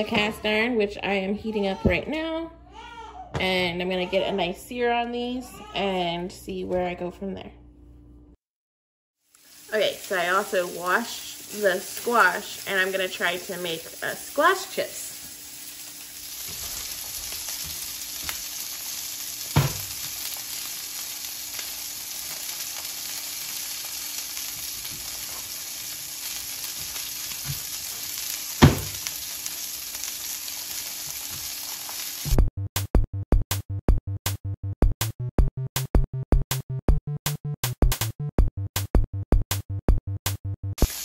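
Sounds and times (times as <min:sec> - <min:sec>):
steaks sizzling in skillet: 0:09.2 - 0:32.4, 0:40.8 - 0:41.0.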